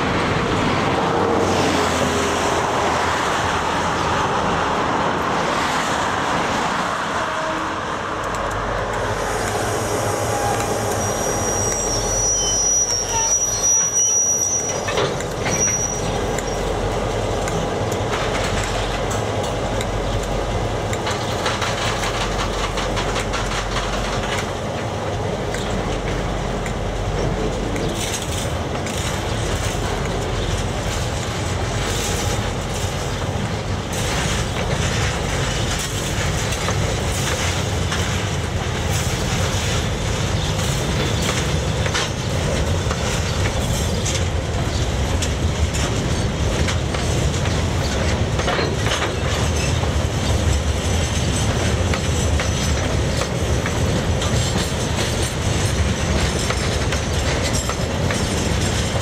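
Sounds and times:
locomotive engine rumble: 0.0s - 59.0s
wheels clacking over rail joints: 8.2s - 59.0s
high wheel squeal: 9.0s - 16.7s.

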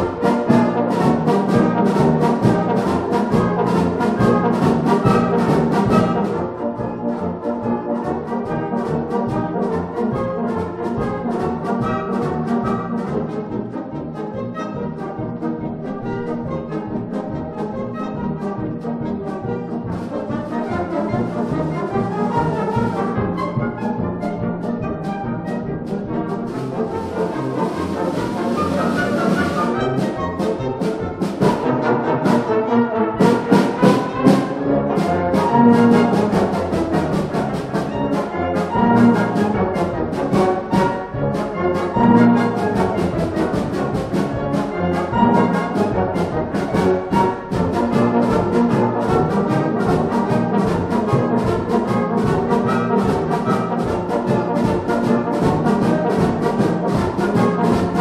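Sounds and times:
concert wind band playing: 0.0s - 58.0s.

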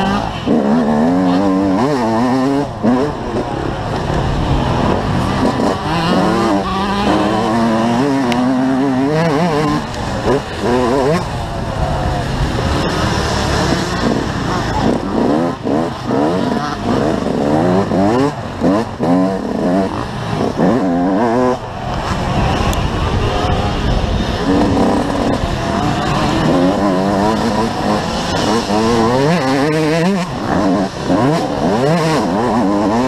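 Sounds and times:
motocross bike engine revving: 0.0s - 33.0s
wind noise on microphone: 21.6s - 30.4s.

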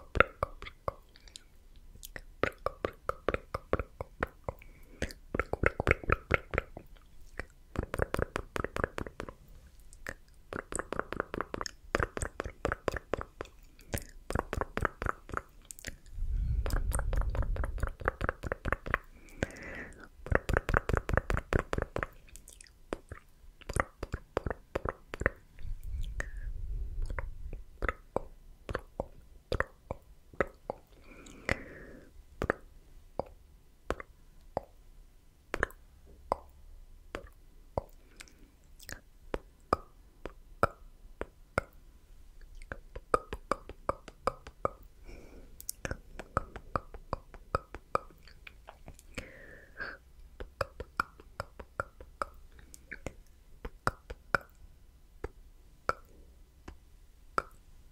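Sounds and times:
wet tongue clicks and lip smacks: 0.1s - 9.3s, 9.9s - 26.4s, 37.1s - 41.8s.

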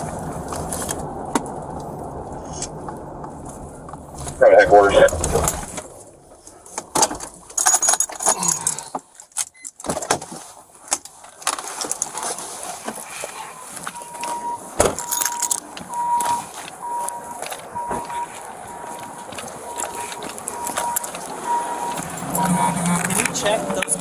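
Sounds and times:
keys clinking and rattling: 7.5s - 8.8s, 15.0s - 15.6s
car warning chime beeping: 13.4s - 23.2s.

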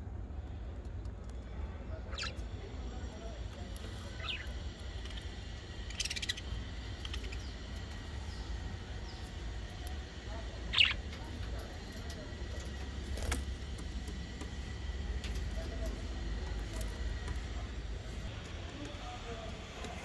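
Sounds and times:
steady low rumble: 0.0s - 20.0s
budgerigars chirping: 2.1s - 2.4s, 4.1s - 9.3s, 10.6s - 11.3s.

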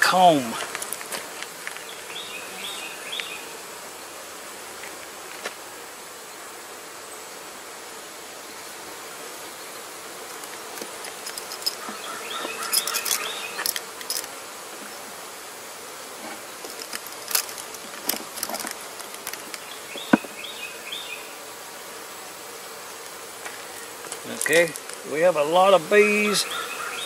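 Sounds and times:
bees humming: 0.0s - 27.0s
hive tool prying wooden frames: 10.2s - 15.0s, 16.1s - 20.5s.

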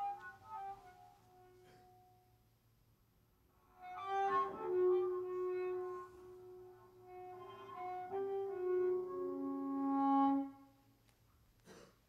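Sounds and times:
slow instrumental music: 0.0s - 2.2s, 3.7s - 10.7s.

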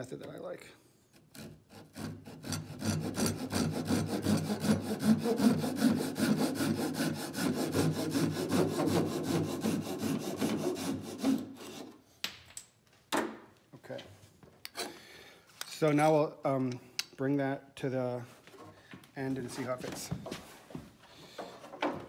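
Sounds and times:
handsaw cutting wood strip: 1.1s - 12.0s.

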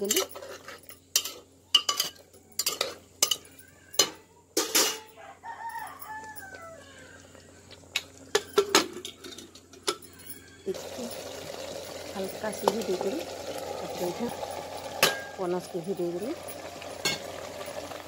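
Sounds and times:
rooster crowing: 5.1s - 7.2s, 10.0s - 11.1s
pot lid clanking: 14.4s - 15.5s, 16.4s - 17.9s.

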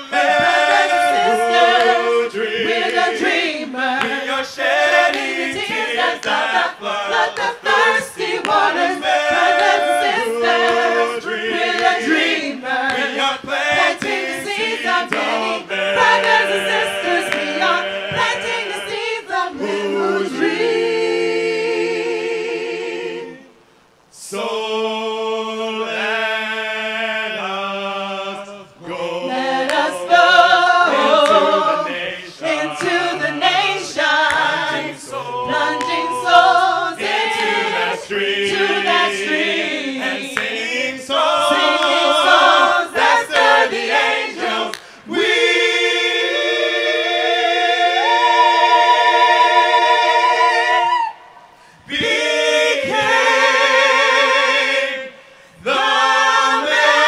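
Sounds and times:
group singing a cappella: 0.0s - 57.0s.

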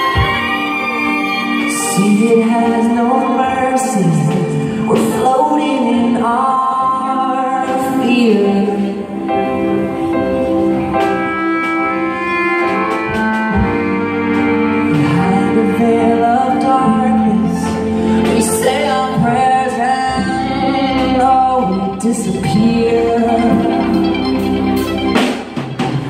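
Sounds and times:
person singing: 0.0s - 11.3s, 12.0s - 26.0s
held keyboard chords: 0.0s - 26.0s
drum kit hits: 24.8s - 26.0s.

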